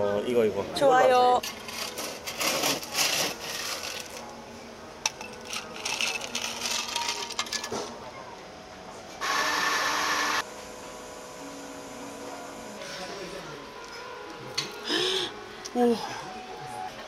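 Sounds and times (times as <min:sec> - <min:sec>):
ice rattling and clinking: 0:01.4 - 0:04.3, 0:05.0 - 0:07.9
coffee machine running: 0:05.1 - 0:07.8, 0:09.2 - 0:13.6.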